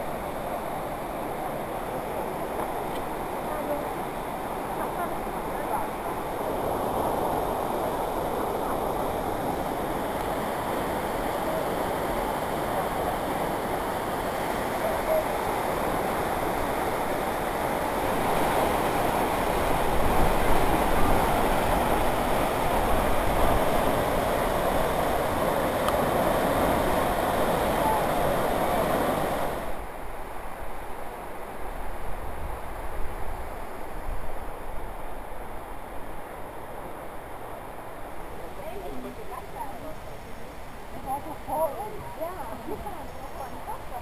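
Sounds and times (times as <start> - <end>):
water rushing over rocks: 0.0 - 30.0.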